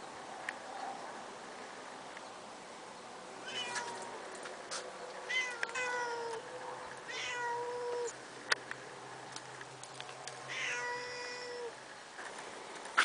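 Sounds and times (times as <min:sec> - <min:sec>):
cats yowling: 0:03.5 - 0:04.1, 0:05.3 - 0:06.4, 0:07.1 - 0:08.2, 0:10.5 - 0:11.8.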